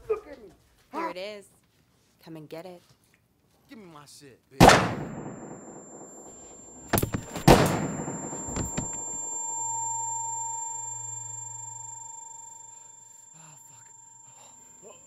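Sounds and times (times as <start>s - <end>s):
revolver gunshots: 4.6s - 8.7s
low hum: 4.9s - 15.0s
high ringing tone: 5.0s - 15.0s.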